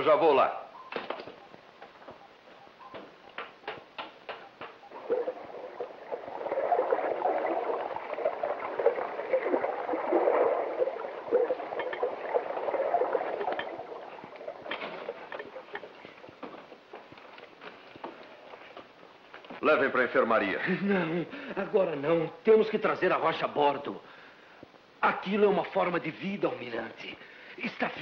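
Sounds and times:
sharp clicks and knocks: 2.9 - 4.8
water gurgling and churning: 4.8 - 16.4.

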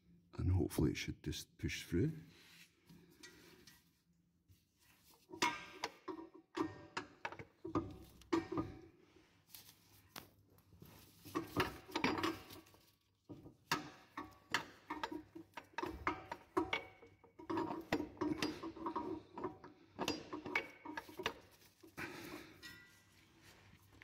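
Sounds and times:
metal clicks and knocks: 5.3 - 8.9, 11.2 - 23.1.

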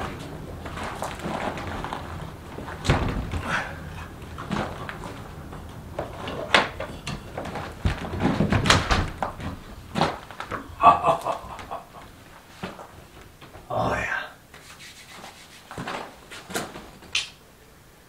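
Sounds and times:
door being handled and fitted: 6.0 - 10.2.

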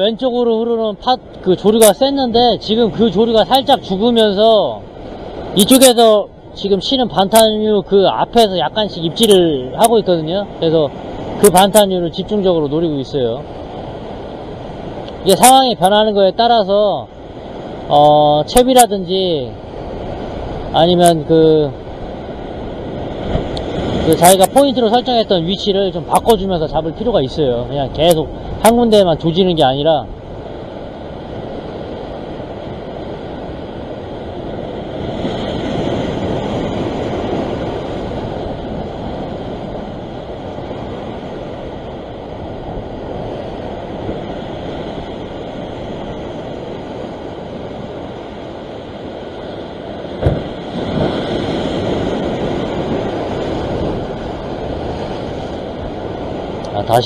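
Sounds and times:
ocean waves breaking on rocks: 0.0 - 57.0
wind buffeting microphone: 19.5 - 57.0
sharp knock: 50.2 - 50.5.

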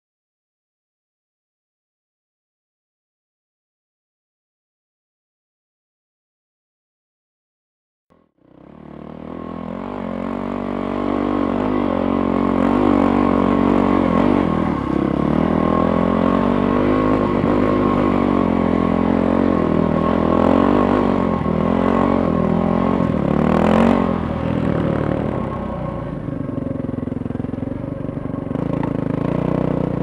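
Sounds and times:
dirt bike engine revving: 8.4 - 30.0.

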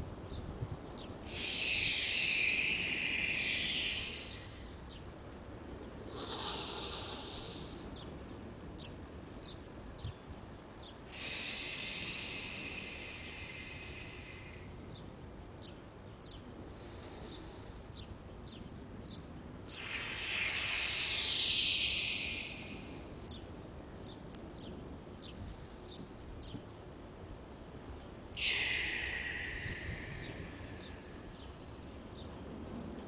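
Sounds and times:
steady low hiss: 0.0 - 33.0
loud hissing swells: 1.2 - 5.0, 6.0 - 7.8, 11.1 - 14.8, 16.8 - 17.8, 19.7 - 23.6, 28.3 - 31.8.

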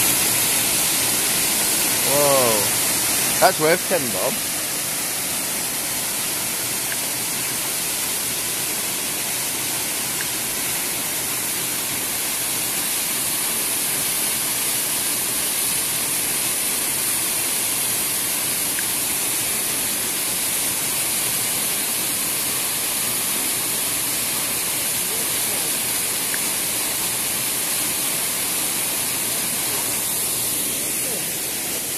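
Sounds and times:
waterfall rushing: 0.0 - 14.5, 27.0 - 31.9.

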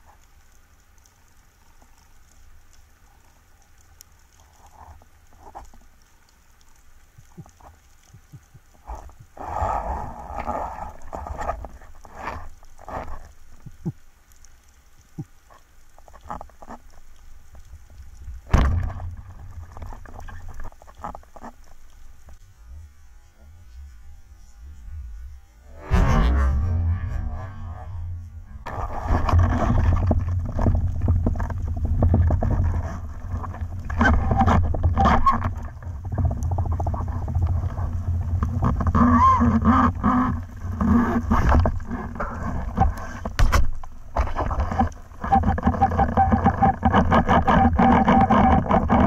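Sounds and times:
sharp clicks and crackle: 0.0 - 49.0
low underwater rumble: 16.1 - 49.0.

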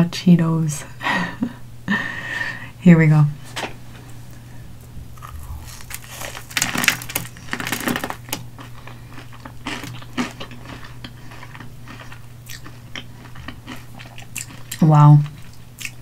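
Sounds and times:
crunching snack bites: 5.1 - 16.0.

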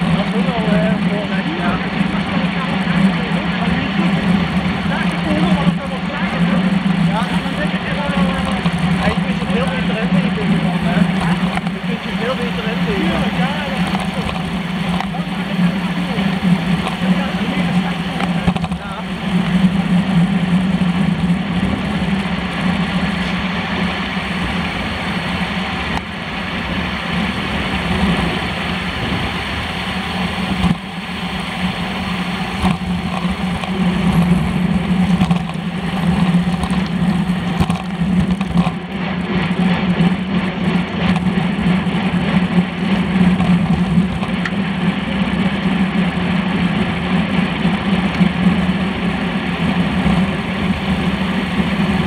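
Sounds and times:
road rumble: 0.0 - 52.0
wind rush on bicycle: 0.0 - 52.0.

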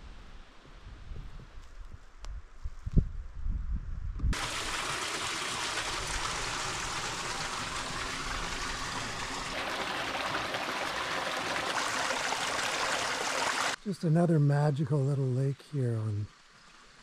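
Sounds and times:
stream trickling over rocks: 4.4 - 17.0.

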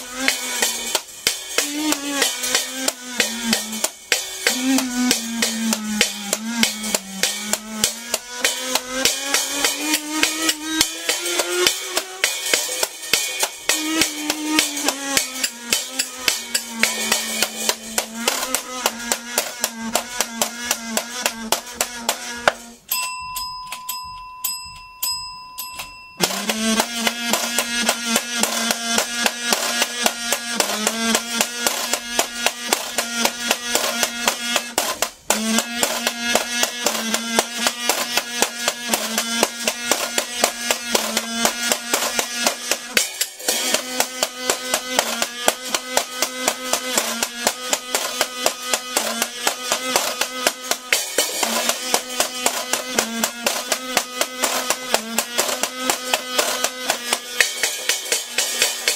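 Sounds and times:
washboard scraped and tapped: 0.0 - 22.7, 26.2 - 58.9
kazoo buzzing notes: 0.0 - 58.9
bell ringing: 22.8 - 26.6.

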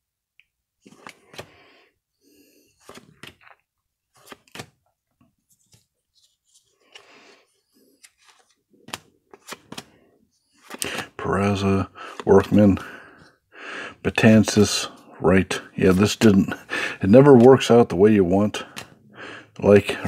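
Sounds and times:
cards flipped by hand: 0.8 - 1.6, 2.6 - 11.2, 18.6 - 19.0.

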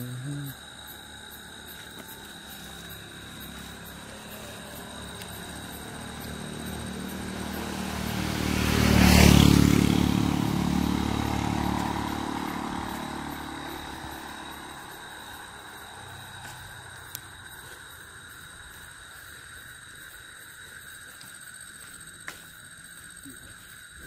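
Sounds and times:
vehicle engine passing by: 0.5 - 17.8.

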